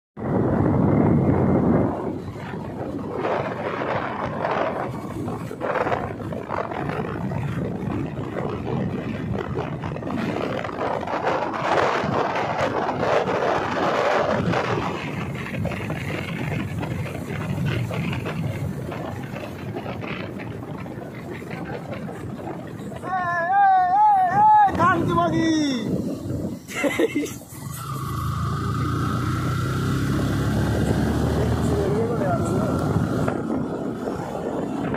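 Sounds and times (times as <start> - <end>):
motorbike road noise: 0.2 - 34.9
wind buffeting microphone: 0.2 - 34.9.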